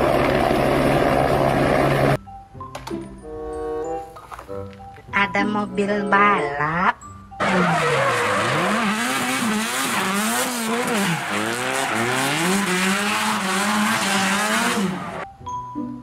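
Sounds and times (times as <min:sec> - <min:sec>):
car engine revving: 0:07.4 - 0:15.2
tyres squealing: 0:07.4 - 0:15.2.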